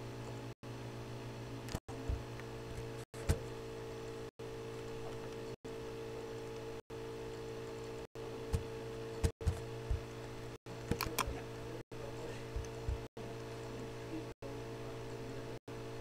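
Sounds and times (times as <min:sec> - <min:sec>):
electrical hum: 0:00.0 - 0:16.0
computer mouse clicks: 0:10.9 - 0:11.3.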